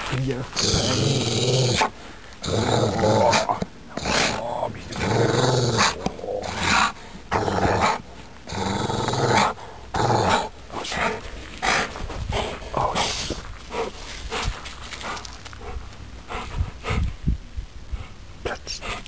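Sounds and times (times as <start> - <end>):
dog growling: 0.5 - 13.2.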